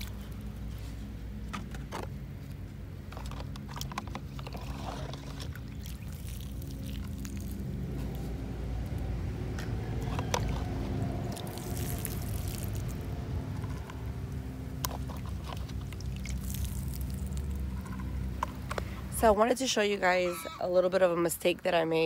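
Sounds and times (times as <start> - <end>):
water pouring onto soil: 0.0 - 0.8, 4.3 - 9.0, 11.2 - 14.0, 14.8 - 18.3.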